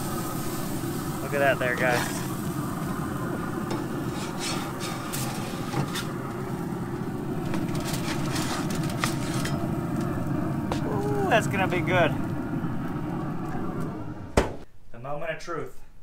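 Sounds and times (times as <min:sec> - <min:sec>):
metal spatula scraping grill grates: 0:03.6 - 0:06.3, 0:07.4 - 0:10.2
low rumble: 0:06.2 - 0:14.4
aluminium foil crinkling: 0:07.4 - 0:10.2.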